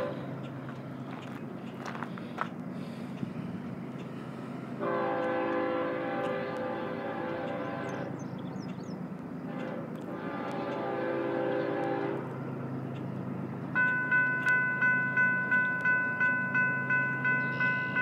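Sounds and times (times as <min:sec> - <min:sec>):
locomotive horn blasts: 0:00.0 - 0:00.4, 0:04.8 - 0:08.3, 0:09.4 - 0:12.4
low train rumble: 0:00.0 - 0:18.0.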